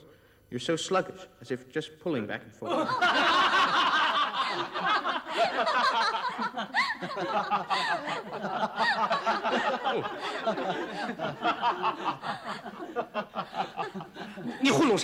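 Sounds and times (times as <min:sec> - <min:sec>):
group of people laughing: 0:02.6 - 0:15.0.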